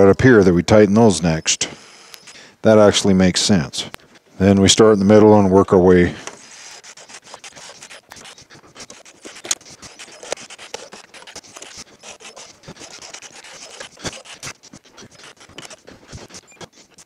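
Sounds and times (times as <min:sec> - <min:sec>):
scratching and rubbing: 0:06.3 - 0:17.0.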